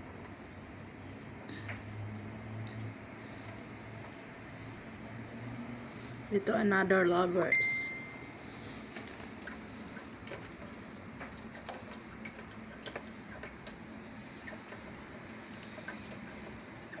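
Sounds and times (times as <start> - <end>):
turtle claws scrabbling on plastic: 8.5 - 17.0.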